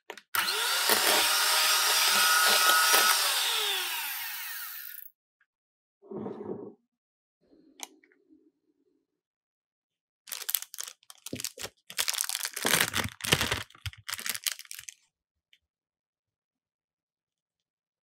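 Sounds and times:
plastic piping bag crinkling: 10.3s - 15.1s.

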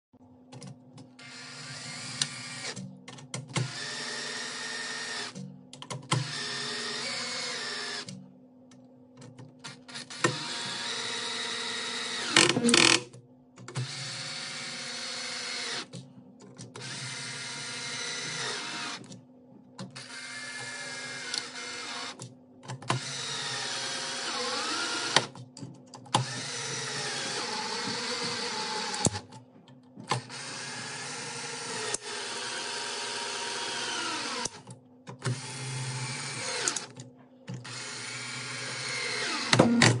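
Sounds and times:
cordless drill driving screws: 9.9s - 13.0s, 23.0s - 25.3s, 30.2s - 34.6s, 37.6s - 39.9s.

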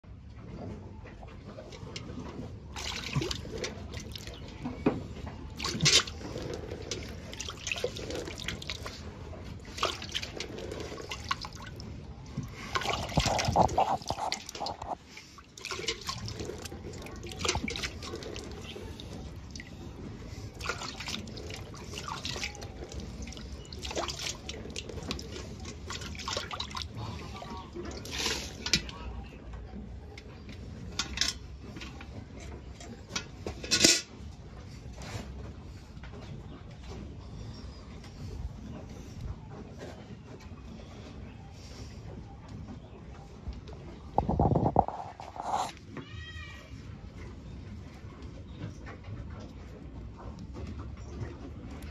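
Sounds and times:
milk squirting into a metal pail: 12.7s - 15.0s, 15.6s - 19.1s.

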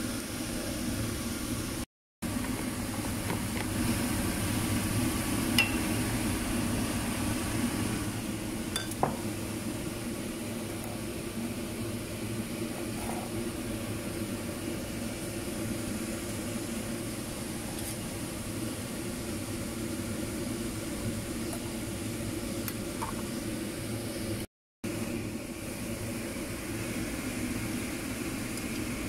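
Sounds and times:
fan motor humming: 0.0s - 29.0s.

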